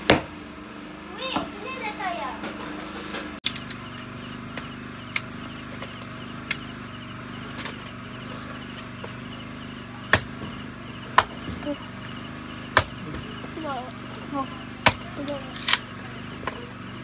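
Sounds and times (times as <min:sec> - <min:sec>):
blade chopping wood: 0:03.4 - 0:06.8, 0:07.4 - 0:11.8, 0:12.4 - 0:13.6, 0:14.7 - 0:16.8
night insects chirping: 0:03.4 - 0:17.0.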